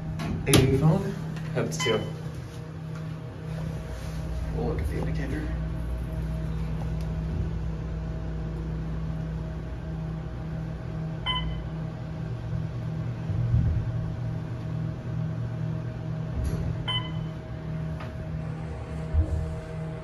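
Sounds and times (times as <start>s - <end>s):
elevator car humming and rumbling: 0.0s - 20.0s
short electronic beeps: 1.8s - 2.2s, 11.3s - 11.6s, 16.9s - 17.3s.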